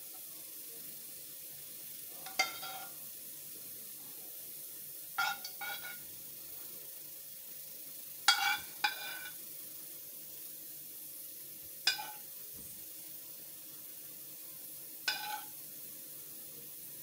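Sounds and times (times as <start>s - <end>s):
faint hiss: 0.0s - 17.0s
metal spoon clinking on pan: 2.2s - 3.0s, 5.2s - 6.0s, 8.3s - 9.4s, 11.8s - 12.3s, 15.0s - 15.6s.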